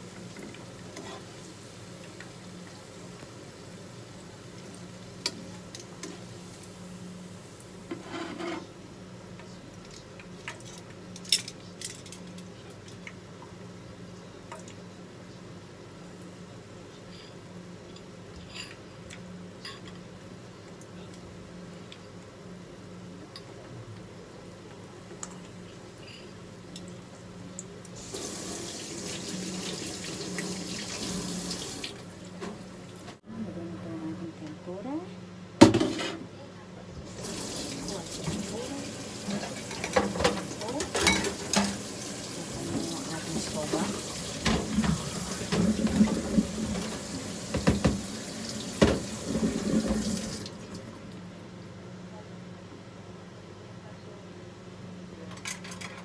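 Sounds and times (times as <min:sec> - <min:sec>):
food sizzling in hot oil: 0:27.9 - 0:32.2, 0:37.1 - 0:50.6
faucet running into sink: 0:28.0 - 0:32.0, 0:37.1 - 0:50.9.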